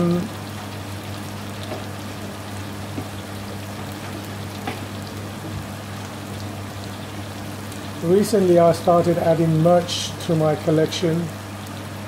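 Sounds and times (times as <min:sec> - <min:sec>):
curry sizzling in a pan: 0:00.0 - 0:12.0
steady low hum: 0:00.0 - 0:12.0.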